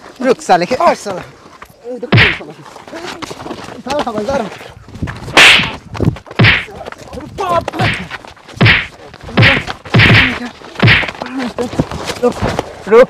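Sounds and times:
loud punches and slaps: 0:02.1 - 0:02.4, 0:05.4 - 0:05.8, 0:06.4 - 0:06.7, 0:07.8 - 0:11.2.

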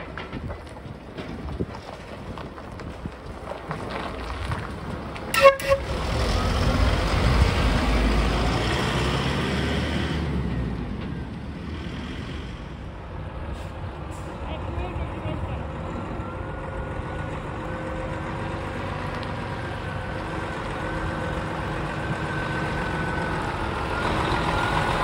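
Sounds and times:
truck driving past: 0:03.7 - 0:25.0
horn toots: 0:05.3 - 0:06.2.

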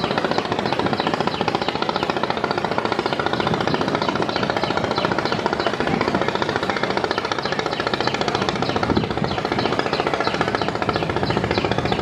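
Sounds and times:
boat diesel engine pulsing: 0:00.0 - 0:12.0.

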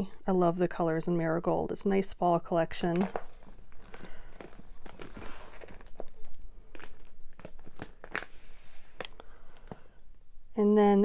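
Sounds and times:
plastic sleeves crinkling: 0:02.8 - 0:10.1.

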